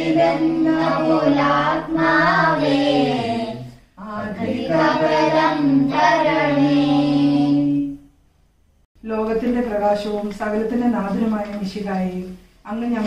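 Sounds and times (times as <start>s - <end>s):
group singing a hymn in unison: 0.0s - 8.0s.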